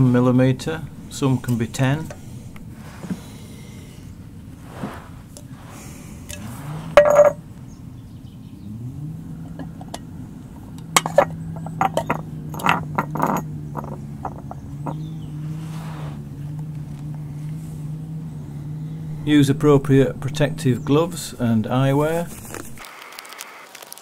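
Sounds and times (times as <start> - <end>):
low vehicle hum: 0.0 - 22.8
glass jar clinking and scraping: 0.6 - 2.6, 6.3 - 7.4, 11.0 - 15.1.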